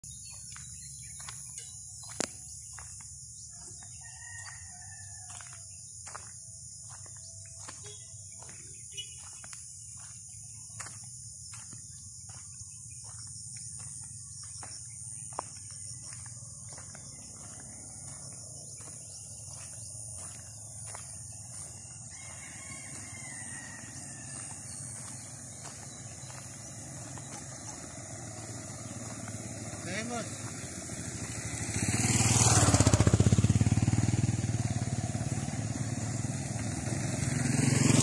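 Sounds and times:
insects droning: 0:00.0 - 0:38.0
distant rooster crowing: 0:03.5 - 0:05.9, 0:19.8 - 0:27.2.

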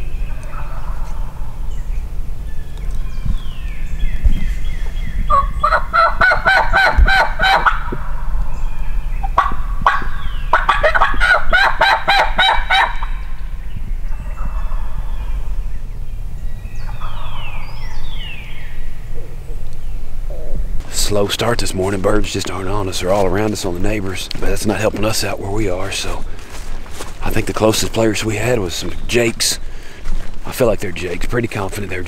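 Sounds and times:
low wind rumble: 0:00.0 - 0:32.0
turkey gobbling: 0:00.3 - 0:01.4, 0:05.3 - 0:08.3, 0:09.2 - 0:13.3, 0:14.1 - 0:15.3.

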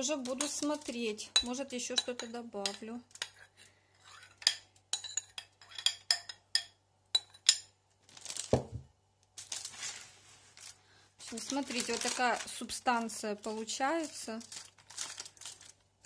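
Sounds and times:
metal utensil clinking on bowl: 0:00.2 - 0:07.7
soft rustling: 0:09.4 - 0:15.8.

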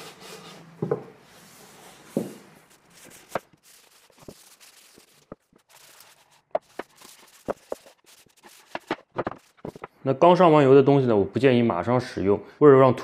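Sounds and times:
cloth rubbing on wood: 0:01.4 - 0:09.9.

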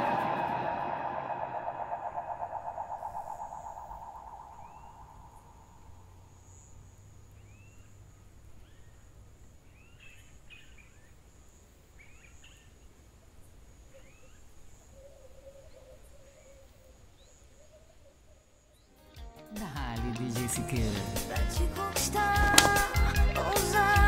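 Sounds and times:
high insect drone: 0:00.0 - 0:18.9.

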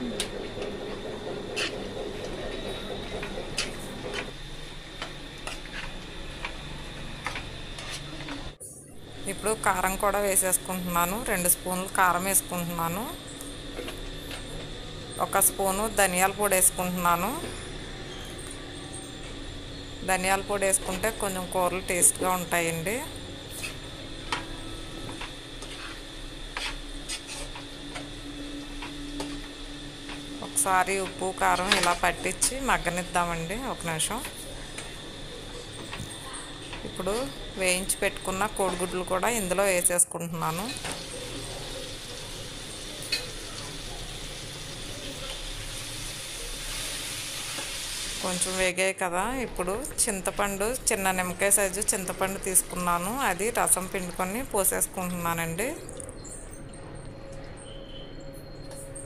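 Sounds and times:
spoon stirring and scraping pan: 0:25.2 - 0:28.1
metal spatula scraping a pan: 0:25.6 - 0:26.0, 0:26.6 - 0:27.6.

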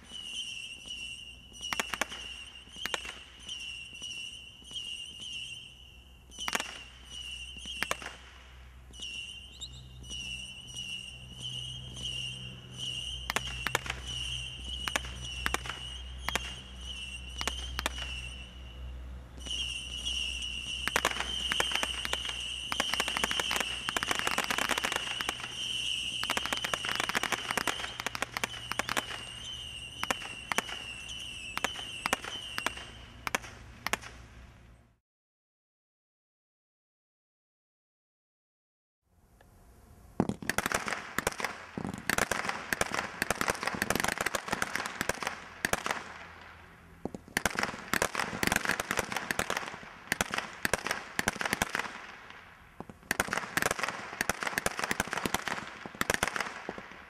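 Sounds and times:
high whistling tone: 0:00.0 - 0:08.2, 0:08.8 - 0:33.3
roman candle shots and pops: 0:00.1 - 0:18.4, 0:19.4 - 0:34.2, 0:40.2 - 0:57.0.

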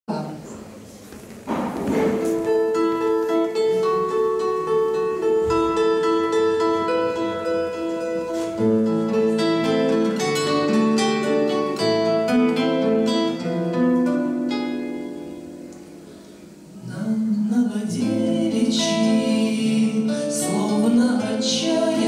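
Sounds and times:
acoustic guitars picking notes: 0:01.4 - 0:22.0.

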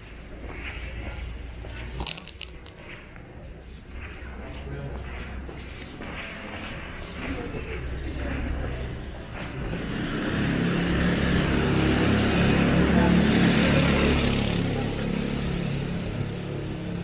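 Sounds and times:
motor scooter passing by: 0:07.1 - 0:17.0.

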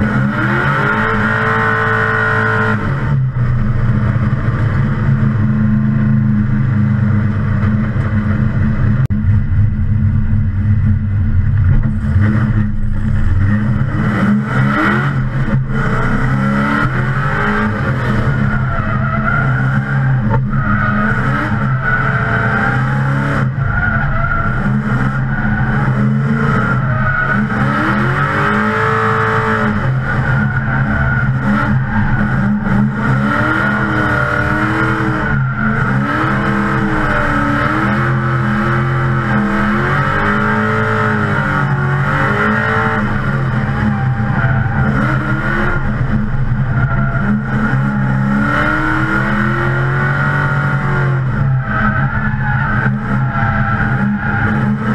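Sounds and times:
engine revving under load: 0:11.6 - 0:54.9
tire squeal: 0:11.9 - 0:54.9.

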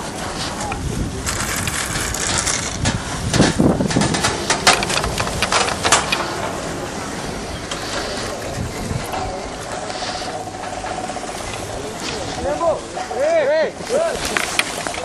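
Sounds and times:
steady rushing noise: 0:00.0 - 0:15.0
chairlift grip rattling clicks: 0:01.2 - 0:13.2.

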